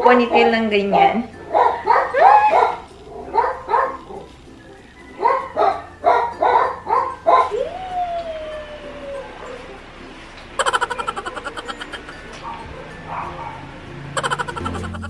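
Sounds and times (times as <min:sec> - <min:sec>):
dog whining: 0:01.4 - 0:09.8, 0:10.6 - 0:15.0
dog barking: 0:01.5 - 0:04.4, 0:05.2 - 0:07.7, 0:10.6 - 0:14.5.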